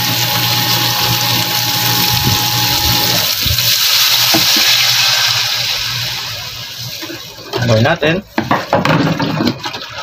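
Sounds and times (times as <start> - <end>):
liquid sizzling in hot pan: 0.0 - 10.0.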